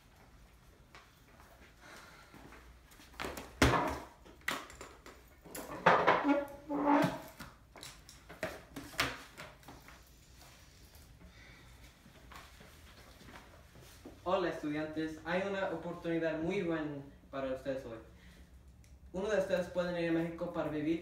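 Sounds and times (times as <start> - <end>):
scraping on countertop: 5.8 - 7.4.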